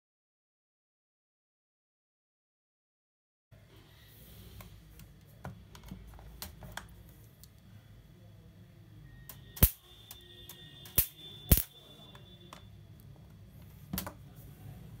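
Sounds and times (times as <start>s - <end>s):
faint high whine: 6.9s - 15.0s
electric spark snaps: 9.6s - 10.2s, 10.8s - 11.8s.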